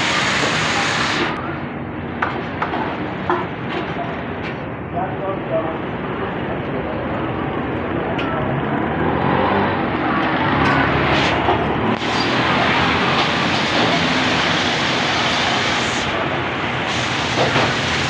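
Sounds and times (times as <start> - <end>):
street noise rushing: 0.0 - 18.0.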